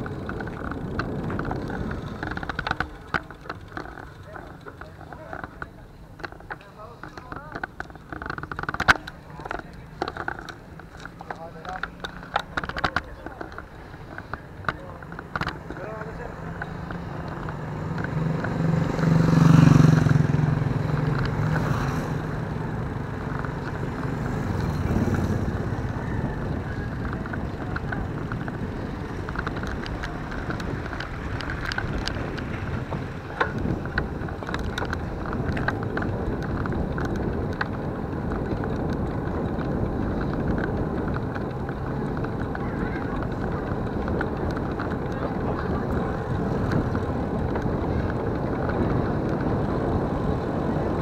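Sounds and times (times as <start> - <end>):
wind on microphone: 0.0 - 4.4, 11.9 - 51.0
rattling clicks: 0.0 - 18.6
low engine tone: 0.0 - 51.0
vehicle engine and road noise: 0.0 - 51.0.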